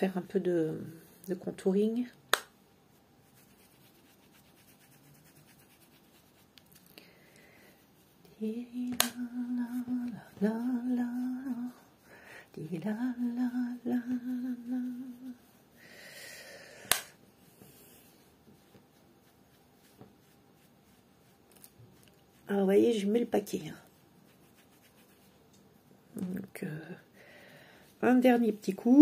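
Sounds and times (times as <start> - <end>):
woman humming: 8.4 - 11.8, 12.6 - 15.4.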